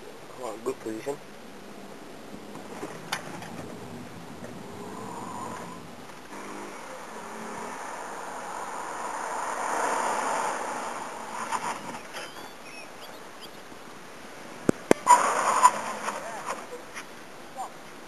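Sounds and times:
car driving past: 4.6 - 12.2.

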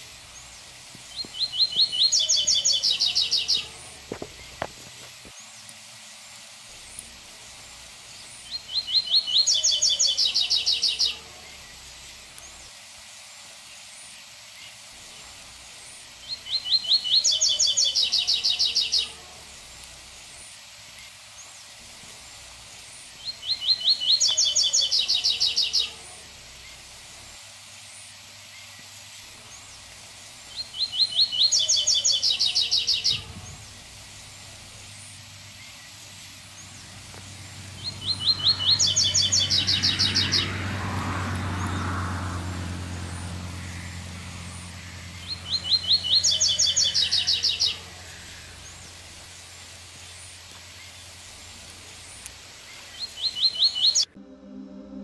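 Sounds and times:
bird singing high rapid song: 0.3 - 4.7, 8.2 - 11.8, 16.2 - 19.2, 23.2 - 26.0, 27.9 - 40.7, 43.0 - 51.2, 51.9 - 54.1
low rumble: 54.1 - 55.0.

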